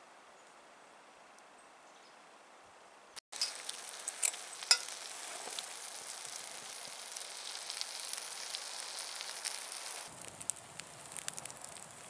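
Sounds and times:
chicken sizzling in a pot: 3.3 - 12.0
sharp pops: 3.3 - 12.0.

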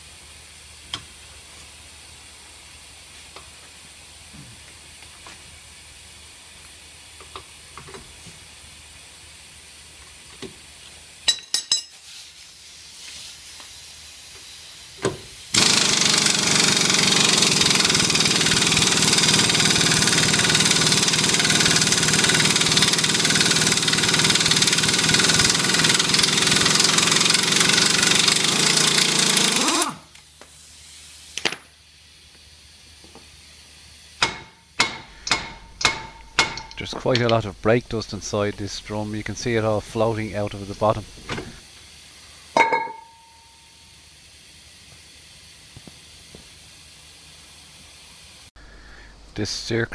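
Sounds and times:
pneumatic impact wrench rattling: 15.2 - 31.8, 34.2 - 38.7
sharp metal clicks: 34.2 - 38.6.

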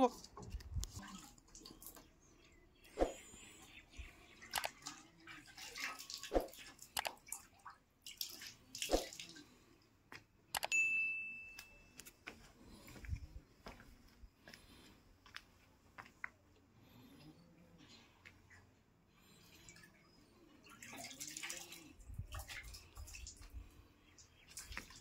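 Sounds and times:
click and bell ding: 10.6 - 12.0.

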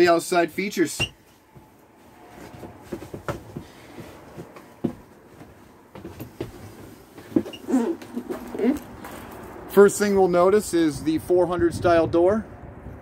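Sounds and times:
soft knocks and rustles: 1.1 - 9.5.

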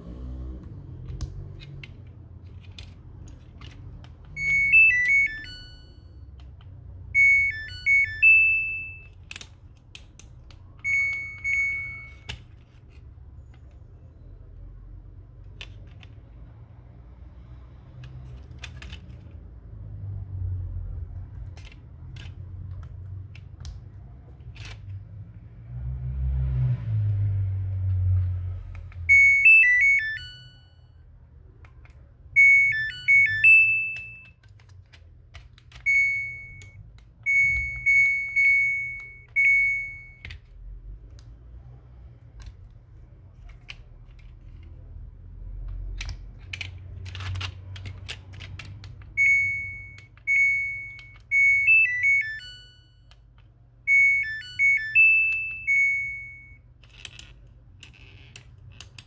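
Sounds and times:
soft clicks and handling noise: 0.5 - 25.4, 31.0 - 59.0
high key beeps: 4.4 - 6.2, 7.2 - 9.2, 10.8 - 12.4, 29.1 - 30.9, 32.4 - 34.3, 35.8 - 40.3, 49.2 - 53.1, 53.9 - 56.6
electronic jingle from buzzer: 7.2 - 9.0, 32.4 - 34.2, 49.2 - 53.0, 53.9 - 56.6.

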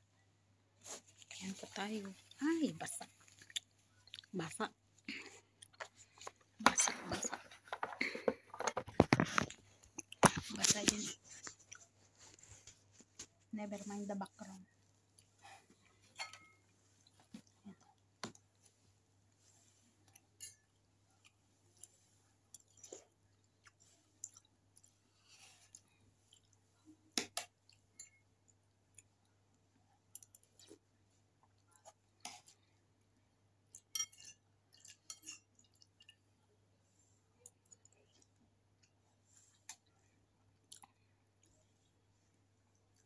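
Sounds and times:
chewing and mouth noises: 3.1 - 4.4, 20.0 - 28.2, 33.6 - 36.5, 37.4 - 41.7.

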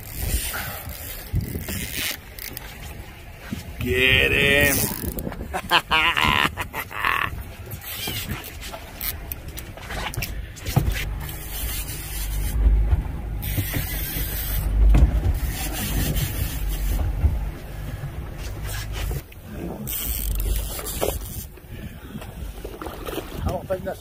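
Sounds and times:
fishing reels clicking: 0.0 - 2.7, 4.7 - 5.3, 7.8 - 9.4, 11.2 - 12.6, 13.4 - 14.7, 19.9 - 21.5
wind buffeting microphone: 0.0 - 8.7, 9.7 - 24.0.

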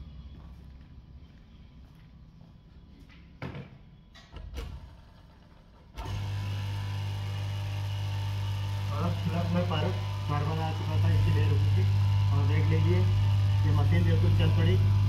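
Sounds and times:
electric motor humming: 6.0 - 15.0.

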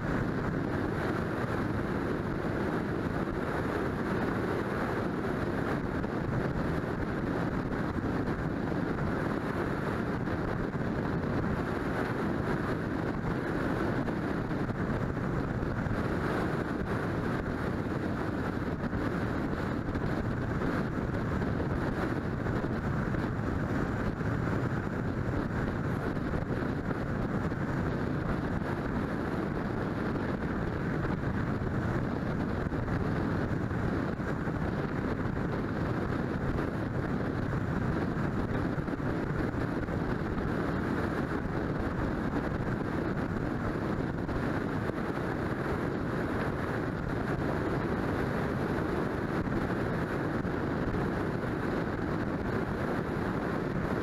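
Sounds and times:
tyres on asphalt road noise: 0.0 - 54.0
wind rush: 0.0 - 54.0.

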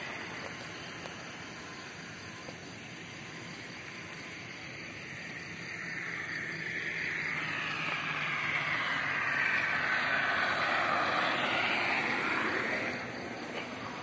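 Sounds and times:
vehicle passing at speed: 4.9 - 14.0.

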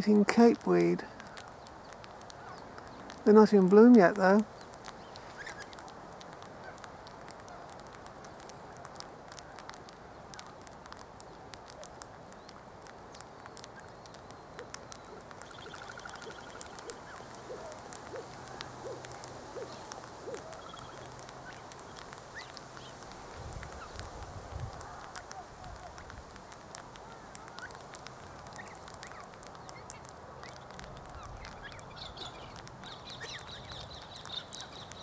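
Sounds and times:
faint clicks: 0.2 - 35.0
faint distant bird calls: 4.4 - 35.0.

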